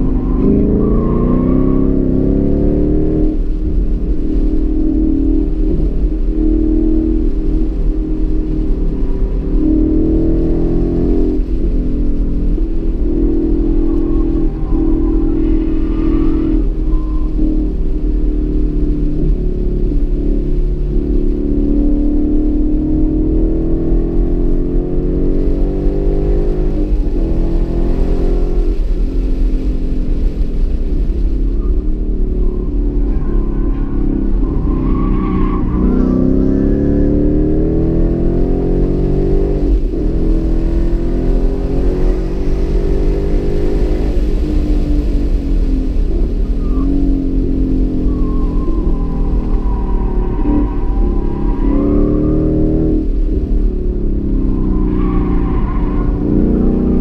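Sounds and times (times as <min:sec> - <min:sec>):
car engine accelerating: 0:00.0 - 0:57.0
low engine rumble: 0:00.0 - 0:57.0.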